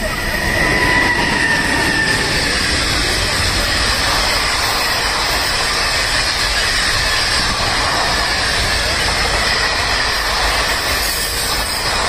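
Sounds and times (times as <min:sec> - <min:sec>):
electric locomotive whine: 0:00.0 - 0:12.0
train wheels rumbling and rattling: 0:00.0 - 0:12.0.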